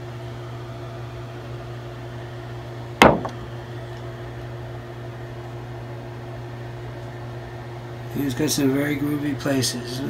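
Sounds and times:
low mechanical hum: 0:00.0 - 0:10.0
sharp knock: 0:03.0 - 0:03.4.

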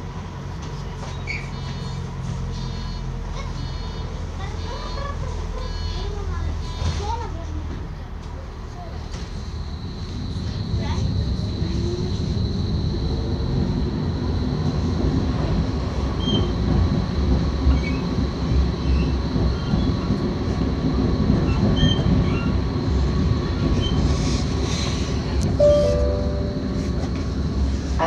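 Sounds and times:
tram wheels rumbling on rails: 0:00.0 - 0:28.0
faint high whine: 0:25.6 - 0:27.4
short tone: 0:25.6 - 0:27.4.

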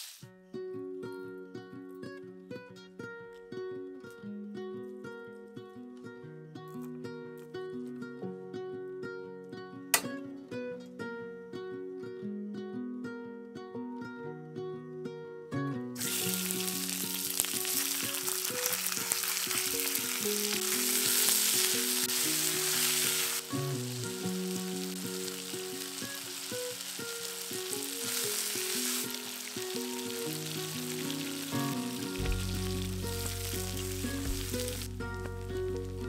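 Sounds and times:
chicken sizzling in hot oil: 0:00.0 - 0:00.2, 0:16.0 - 0:35.9
plucked background music: 0:15.2 - 0:36.0.

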